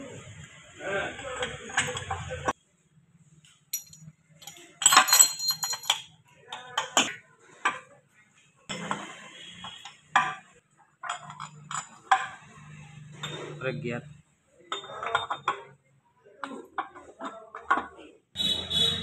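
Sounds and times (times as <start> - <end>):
steel gears clinking and knocking: 3.7 - 6.1.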